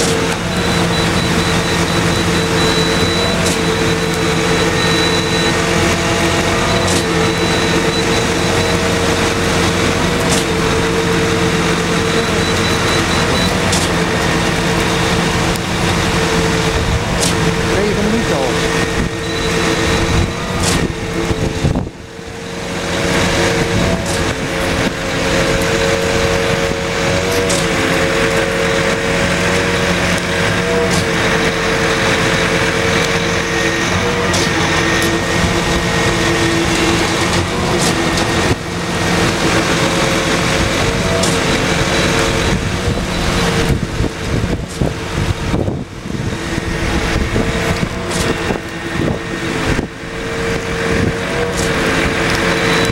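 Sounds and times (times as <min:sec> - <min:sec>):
concrete pump engine drone: 0:00.0 - 0:52.9.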